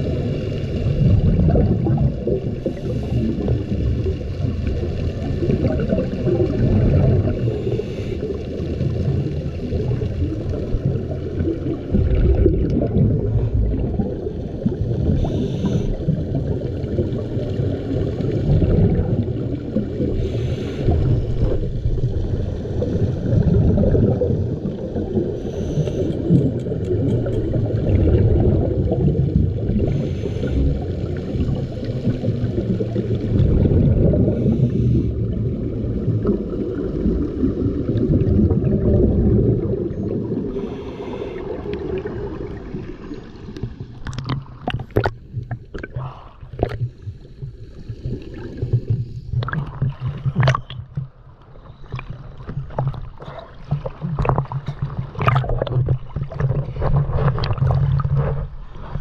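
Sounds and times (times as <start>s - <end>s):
exhaled bubbles hissing: 0.0s - 59.0s
muffled rumble of moving water: 0.0s - 59.0s
diver regulator breaths: 7.3s - 8.6s, 15.1s - 16.0s, 20.1s - 21.6s, 25.3s - 27.4s, 29.8s - 31.0s, 34.2s - 35.3s, 40.5s - 42.0s.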